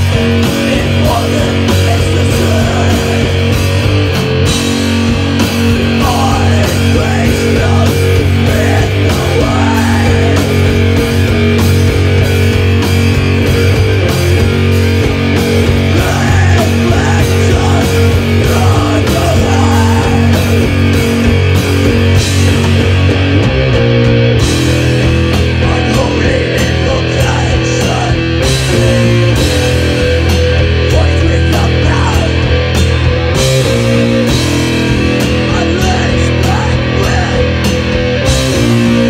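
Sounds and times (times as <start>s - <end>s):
person singing: 0.0s - 3.6s, 5.9s - 11.0s, 15.8s - 20.7s, 25.5s - 29.4s, 30.8s - 32.5s, 35.3s - 37.8s
heavy metal band playing live: 0.0s - 39.0s.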